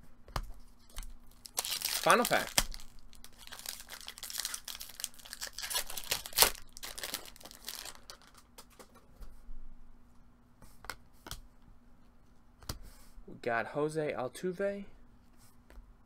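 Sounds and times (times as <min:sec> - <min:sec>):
foil wrapper crinkling and tearing: 0:01.0 - 0:08.5
sharp loud crackle of foil: 0:01.4 - 0:08.5.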